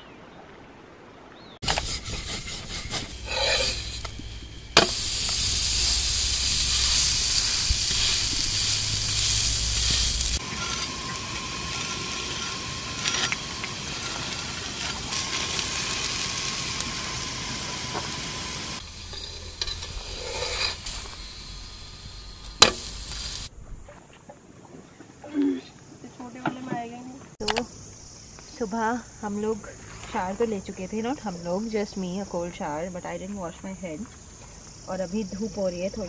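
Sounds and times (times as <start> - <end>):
flatbread sizzling on a griddle: 1.6 - 23.5.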